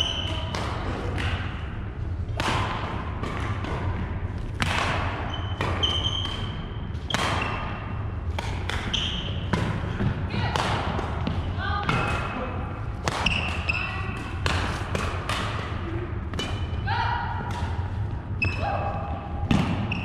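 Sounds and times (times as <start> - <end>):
steady low hum: 0.0 - 20.0
rackets hitting shuttlecock: 2.3 - 12.4, 13.0 - 18.6, 19.4 - 20.0
sneakers squeaking on wooden floor: 5.2 - 6.6, 8.9 - 9.5, 19.8 - 20.0.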